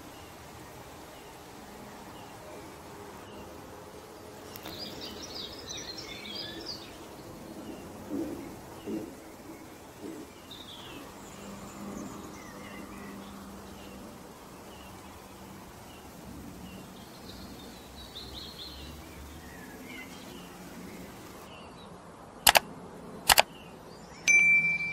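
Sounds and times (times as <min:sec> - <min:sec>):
birds chirping: 0:00.0 - 0:21.9
steady background hiss: 0:00.0 - 0:24.9.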